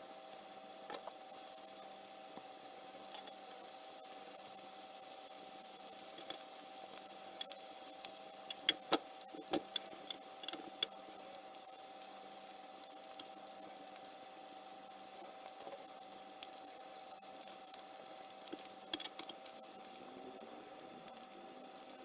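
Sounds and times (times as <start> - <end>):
bacon sizzling: 0.0 - 22.0
faint hum: 0.0 - 22.0.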